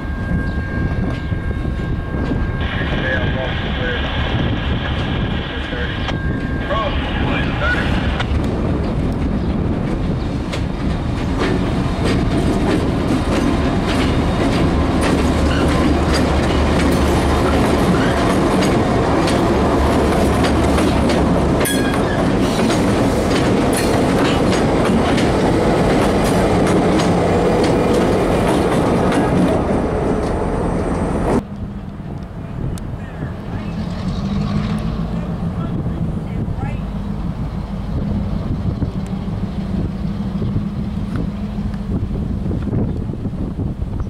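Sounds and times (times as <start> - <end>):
locomotive engines humming: 0.0 - 44.0
wheels clicking over rail joints: 8.2 - 29.6.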